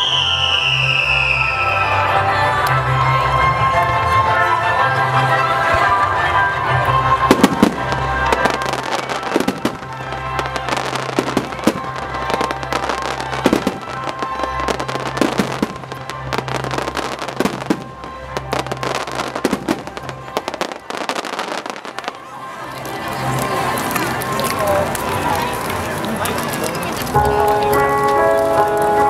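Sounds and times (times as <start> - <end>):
music over loudspeakers: 1.8 - 29.0
fireworks bursting: 7.1 - 28.1.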